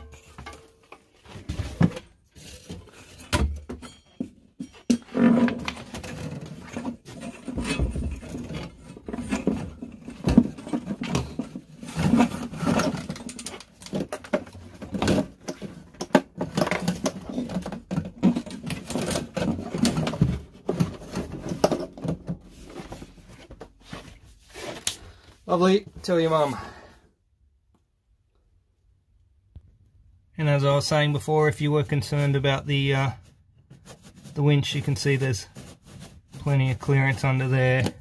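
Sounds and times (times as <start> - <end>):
hoses rustling and scraping: 4.8 - 26.8.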